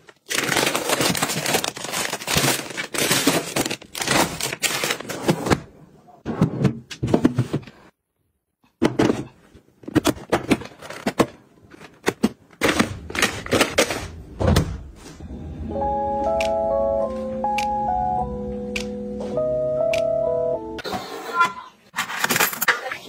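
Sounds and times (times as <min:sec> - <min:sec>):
packaging knocks and rustles: 0:00.0 - 0:05.6
soft background music: 0:15.2 - 0:20.8.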